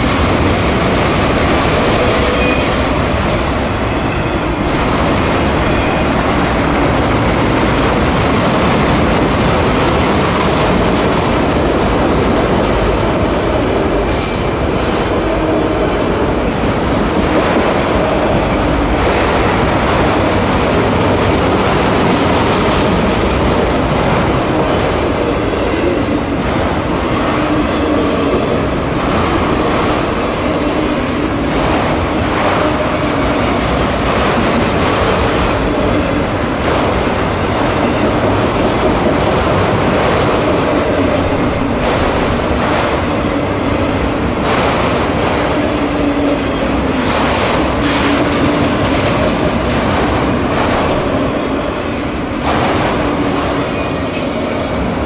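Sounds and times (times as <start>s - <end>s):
steel wheels on rail: 0.0s - 55.0s.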